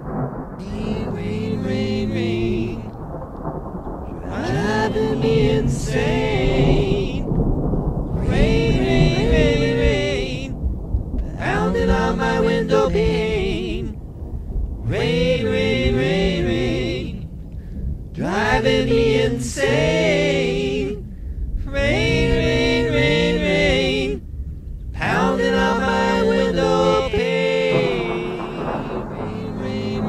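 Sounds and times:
man singing vocal harmony: 0.6s - 3.0s, 4.2s - 10.6s, 11.2s - 14.0s, 14.8s - 17.3s, 18.2s - 24.2s, 25.0s - 30.0s.

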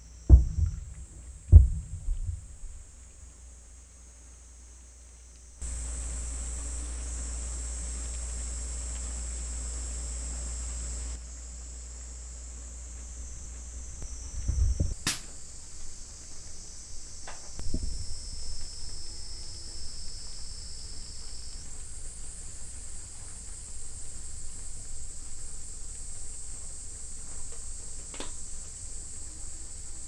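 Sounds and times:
insects chorus: 0.0s - 30.0s
sharp click: 14.8s - 15.4s.

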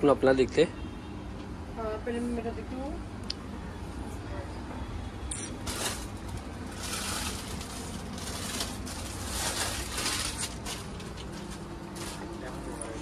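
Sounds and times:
rustling and crinkling: 5.5s - 13.0s.

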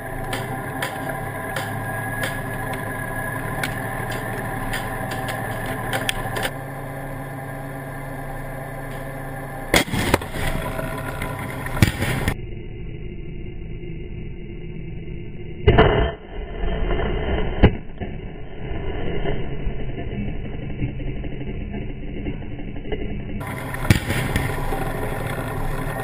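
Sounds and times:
gunshots: 0.0s - 6.6s, 8.9s - 12.4s, 23.4s - 26.0s
tank engine running: 0.0s - 13.1s, 19.6s - 26.0s
loud blast: 8.9s - 12.4s, 23.4s - 26.0s.

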